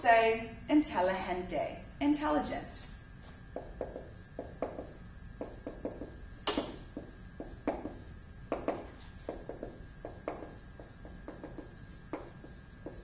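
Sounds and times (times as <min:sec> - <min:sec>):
marker writing on whiteboard: 0:03.5 - 0:13.0.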